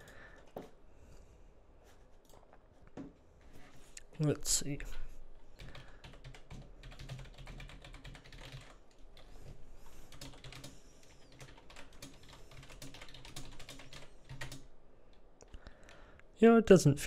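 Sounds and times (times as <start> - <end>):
fast typing on a keyboard: 5.6 - 9.3, 10.1 - 14.7.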